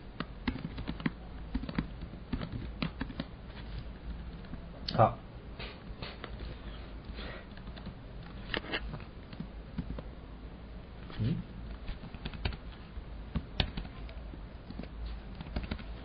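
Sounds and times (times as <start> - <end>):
low steady hum: 0.0 - 16.0
faint clicks and taps at desk: 7.5 - 10.1.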